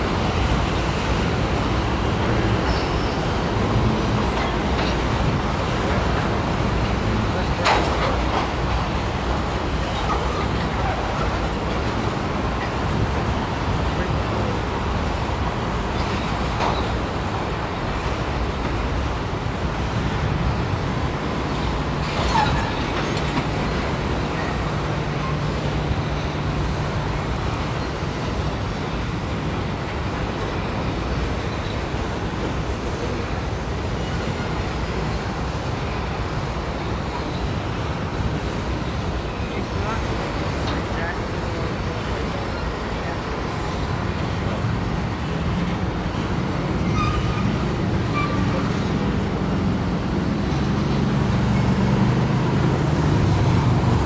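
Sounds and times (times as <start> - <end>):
train wheels rumbling on rails: 0.0 - 54.0.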